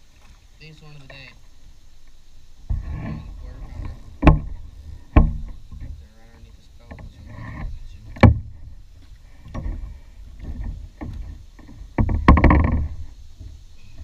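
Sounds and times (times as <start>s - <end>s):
water splashing: 0.0s - 14.0s
fish knocking in plastic kayak: 3.8s - 6.1s, 9.4s - 13.6s.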